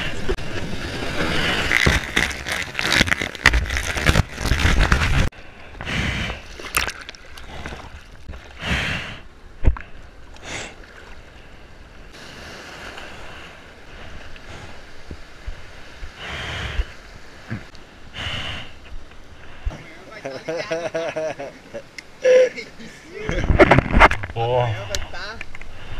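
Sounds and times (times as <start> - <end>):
water splashes: 6.3 - 8.6.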